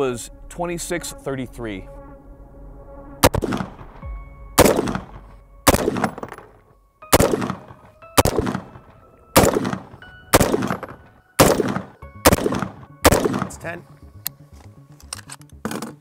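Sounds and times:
rifle shots with echo: 0:03.2 - 0:03.9, 0:04.6 - 0:06.5, 0:07.1 - 0:08.8, 0:09.4 - 0:13.6.

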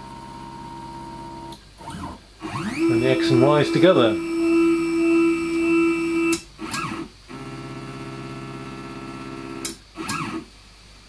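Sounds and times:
stepper motor whine: 0:00.0 - 0:10.5
short rising and falling whir: 0:01.8 - 0:07.0.

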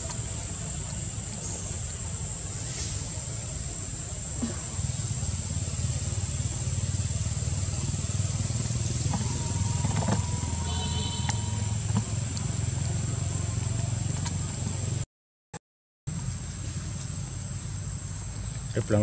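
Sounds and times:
low engine-like rumble: 0:00.0 - 0:15.0, 0:16.1 - 0:19.0
thin high whine: 0:08.6 - 0:12.6
whistle-like tone: 0:09.0 - 0:11.9.

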